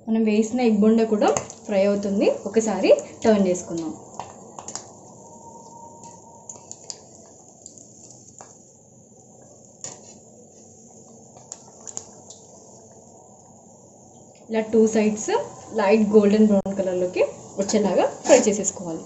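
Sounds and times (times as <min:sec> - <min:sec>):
deep-frying sizzle in oil: 0:06.0 - 0:13.0.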